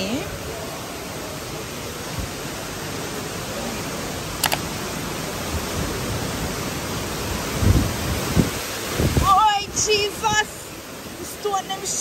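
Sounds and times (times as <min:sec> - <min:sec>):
waterfall: 0:00.0 - 0:12.0
river water rushing: 0:00.8 - 0:12.0
double click: 0:04.4 - 0:04.6.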